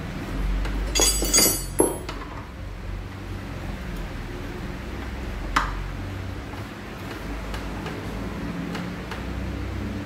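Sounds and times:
metal tools clinking on steel: 0.8s - 2.1s.

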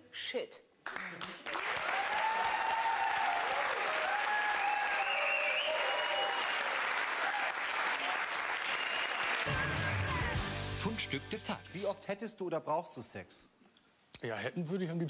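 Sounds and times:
audience applauding: 0.9s - 10.4s
music: 9.4s - 11.9s.

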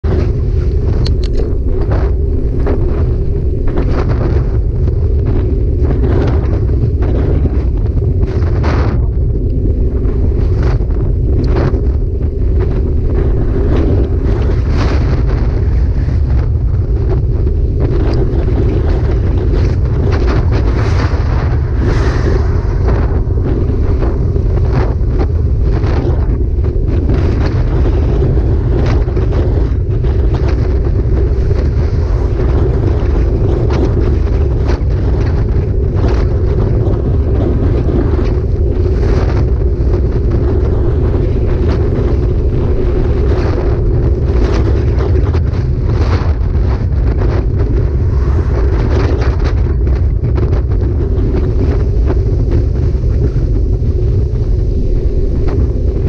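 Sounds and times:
wind buffeting the microphone: 0.0s - 56.0s.

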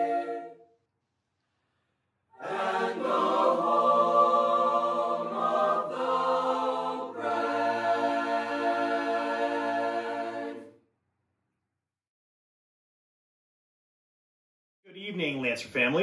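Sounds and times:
choir singing a cappella: 0.0s - 0.7s, 2.4s - 10.8s.

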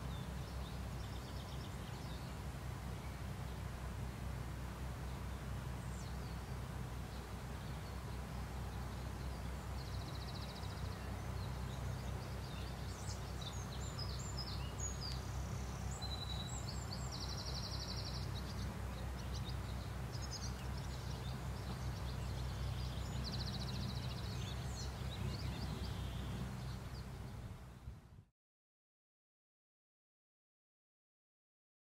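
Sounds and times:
bird chirps: 8.9s - 27.1s.

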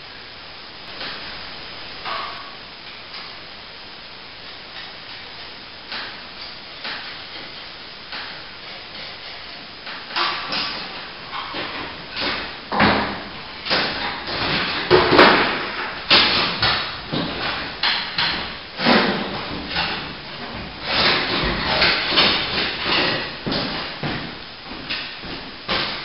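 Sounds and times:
plastering tools scraping: 4.5s - 26.0s
plastering tools knocking: 6.8s - 26.0s.

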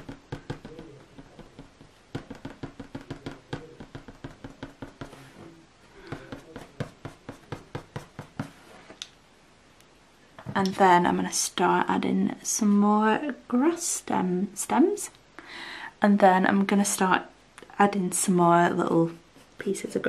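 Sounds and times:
eraser tapping on paper: 0.0s - 5.2s, 6.0s - 8.6s.

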